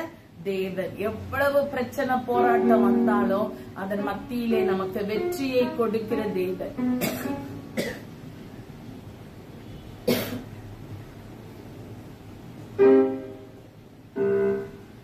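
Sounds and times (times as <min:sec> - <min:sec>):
person coughing: 0:07.0 - 0:08.1, 0:10.0 - 0:10.5.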